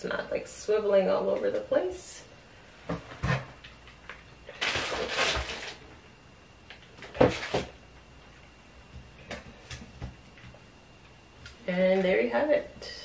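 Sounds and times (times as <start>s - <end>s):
packaging rustling: 4.1s - 5.9s.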